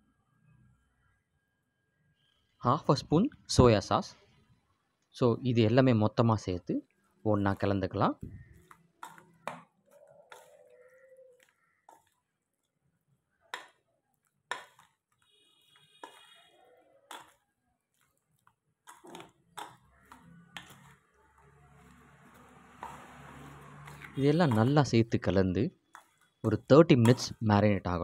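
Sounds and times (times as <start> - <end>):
faint squelching of marinade: 6.8 - 28.0
spoon knocking metal bowl: 22.8 - 24.8, 26.0 - 27.4.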